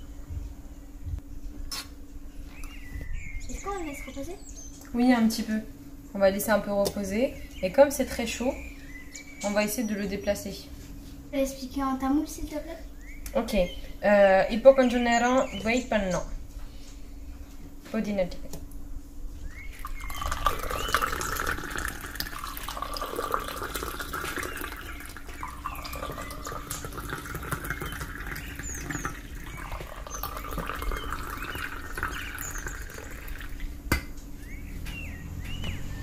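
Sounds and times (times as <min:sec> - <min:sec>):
tea pouring into glasses: 0:19.8 - 0:33.7.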